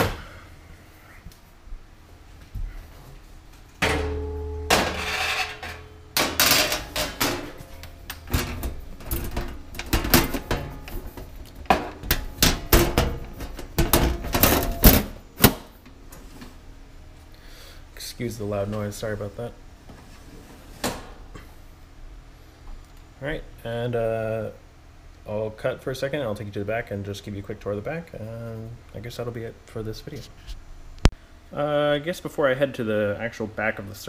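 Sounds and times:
metal cover scraping: 3.8s - 15.2s
sheet metal clanks and bangs: 3.8s - 15.6s.

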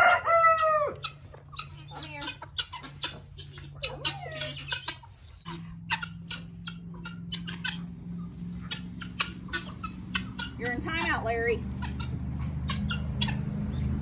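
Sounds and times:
chickens clucking: 0.0s - 14.0s
footsteps on dry leaves: 2.7s - 6.3s, 9.9s - 14.0s.

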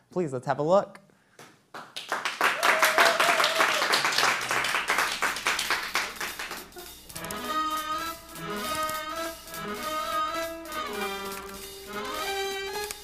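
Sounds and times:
instrumental music: 5.1s - 13.0s.

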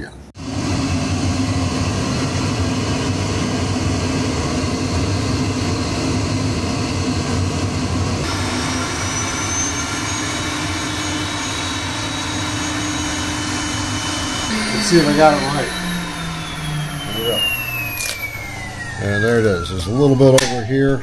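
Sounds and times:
vacuum motor rushing: 6.4s - 21.0s.

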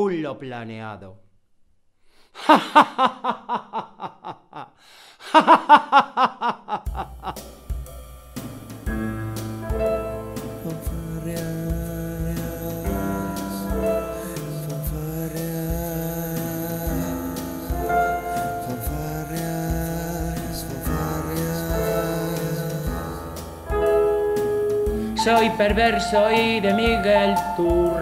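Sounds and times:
man laughing villainously: 2.4s - 7.5s
song intro with held chords: 6.9s - 15.6s, 16.8s - 28.0s.

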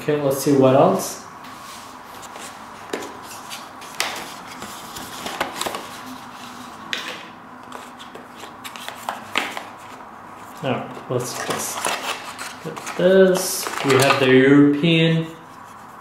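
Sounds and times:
cardboard and paper rustling: 2.1s - 14.3s.

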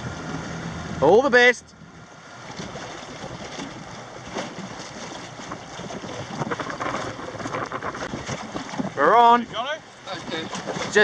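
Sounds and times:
water rushing along hull: 0.0s - 11.0s
wind buffeting microphone: 2.5s - 11.0s.

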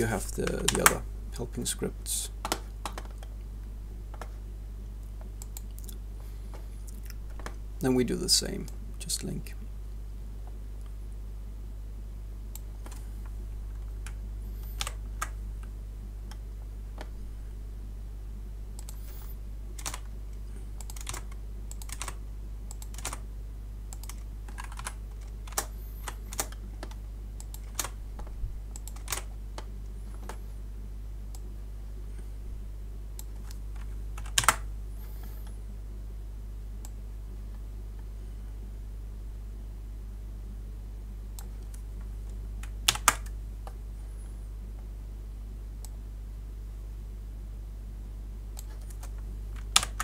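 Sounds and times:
low electrical hum: 0.0s - 50.0s
keyboard keystrokes and clicks: 0.4s - 1.0s, 14.8s - 15.7s, 19.8s - 20.1s, 20.8s - 23.2s, 23.9s - 30.4s, 33.2s - 34.7s, 42.6s - 43.4s, 48.6s - 50.0s.

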